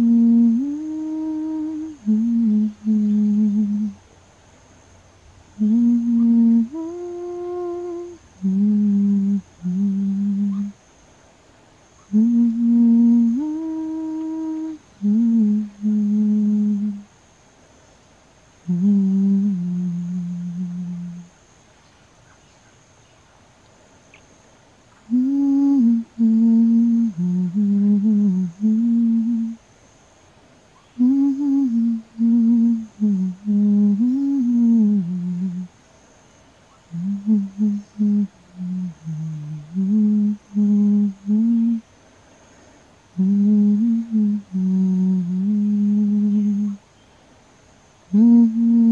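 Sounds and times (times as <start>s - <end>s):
person humming a lullaby: 0.0s - 4.0s, 5.6s - 10.8s, 12.0s - 17.1s, 18.6s - 21.3s, 25.1s - 29.6s, 30.9s - 35.7s, 36.9s - 41.8s, 43.2s - 46.8s, 48.1s - 48.9s.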